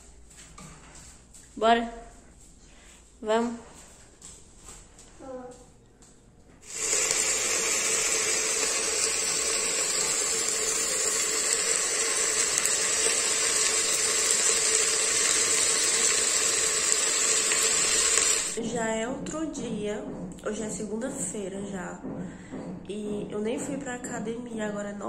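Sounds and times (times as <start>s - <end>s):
water running: 6.6s - 19.0s.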